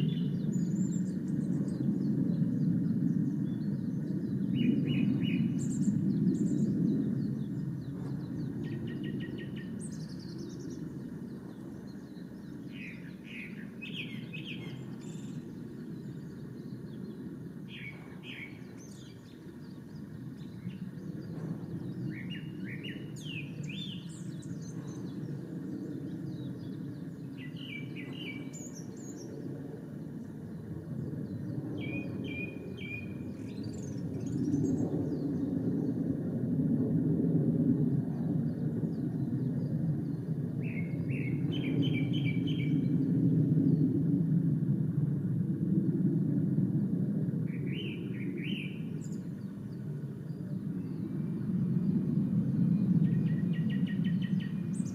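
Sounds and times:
steady low rumble: 13.6 - 40.6.

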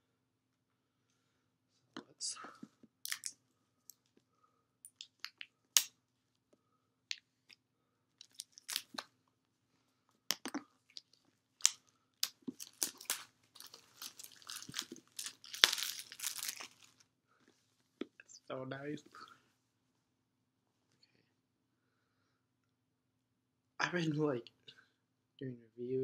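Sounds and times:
plastic film crinkling: 8.2 - 9.0, 10.9 - 17.0.

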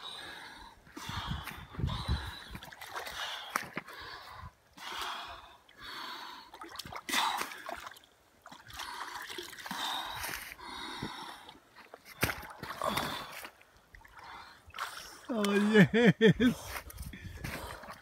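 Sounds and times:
person breathing hard: 0.0 - 6.5, 8.8 - 11.6
water splashing and trickling: 0.1 - 18.0.

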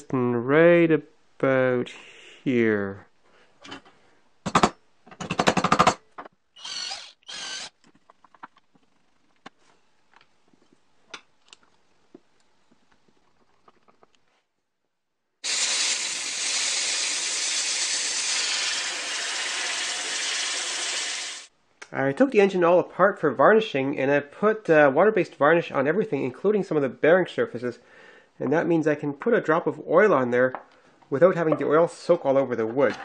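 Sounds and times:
air blow gun hissing: 15.4 - 21.5.

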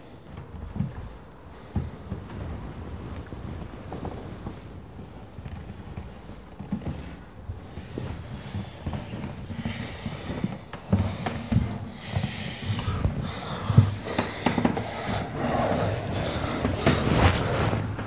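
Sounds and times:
heavy breathing: 7.7 - 18.0.

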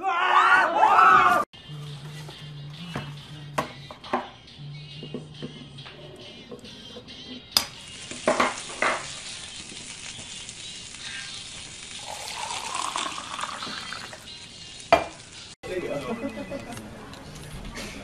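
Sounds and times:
eggs sizzling in a pan: 7.6 - 15.6
liquid pouring into a mug: 12.0 - 14.4.

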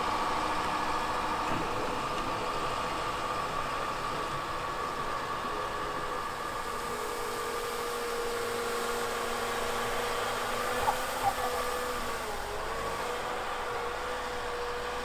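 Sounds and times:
excavator engine and hydraulic whine: 0.0 - 15.0
rushing hiss of snow sweeper: 6.2 - 14.0.

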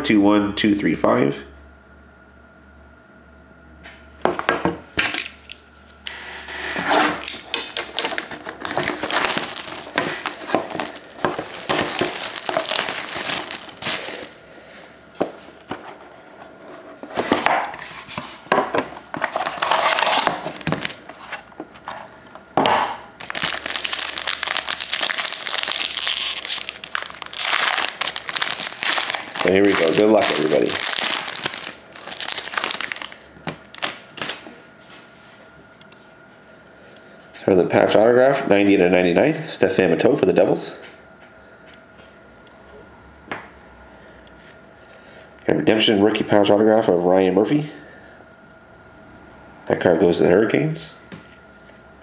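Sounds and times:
plastic wrapping crinkling and tearing: 7.2 - 14.4, 19.3 - 21.3, 23.2 - 34.5.

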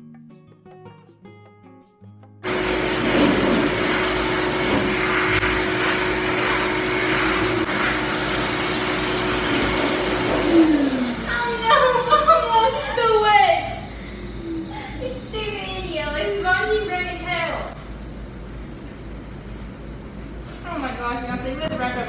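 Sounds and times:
blow dryer rushing air with whine: 2.4 - 19.3.

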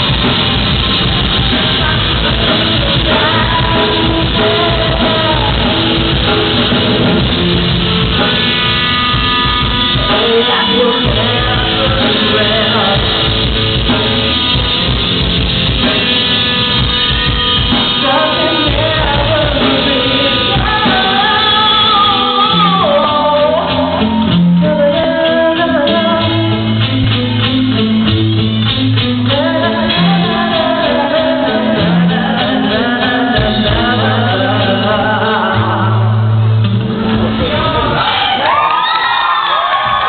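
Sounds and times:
person singing: 0.0 - 7.4, 9.1 - 14.2, 17.6 - 27.9, 29.0 - 36.4
rock band playing: 0.0 - 40.0.

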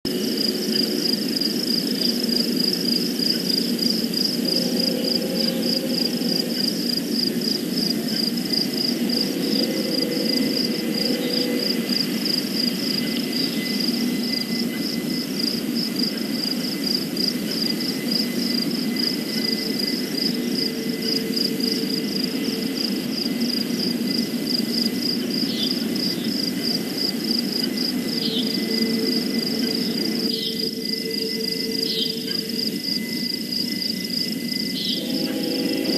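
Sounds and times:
night insects chirping: 0.1 - 35.9.

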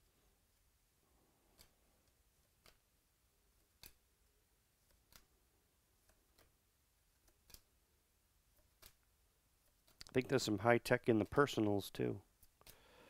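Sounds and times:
cards being flicked: 2.5 - 2.9, 4.8 - 5.3, 7.2 - 7.7, 8.5 - 10.1, 12.4 - 12.8.

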